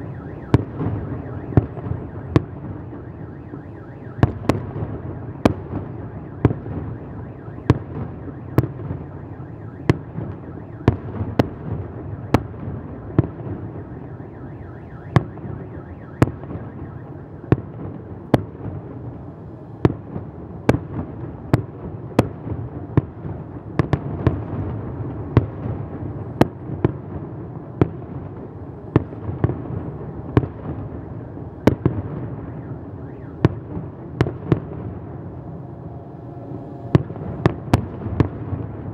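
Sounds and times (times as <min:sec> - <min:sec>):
continuous low rumble: 0:00.0 - 0:38.9
firework bangs: 0:04.2 - 0:07.0, 0:19.8 - 0:38.9.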